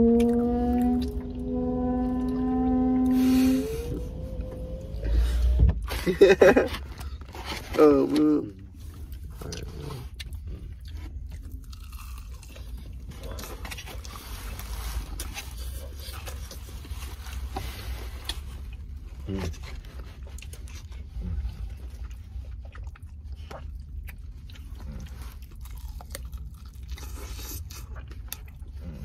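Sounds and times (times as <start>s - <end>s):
wet chewing: 6.8s - 29.0s
crunching of fried breading: 9.1s - 17.4s, 18.2s - 29.0s.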